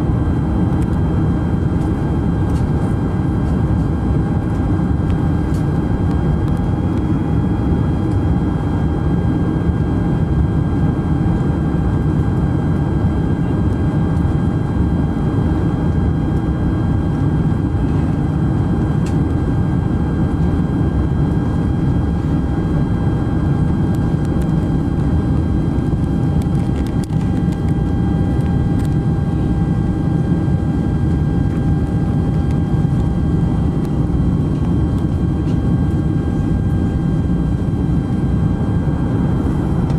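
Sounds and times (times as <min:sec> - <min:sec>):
faint steady whine: 0:00.0 - 0:39.9
jet engine and airflow rumble: 0:00.0 - 0:39.9.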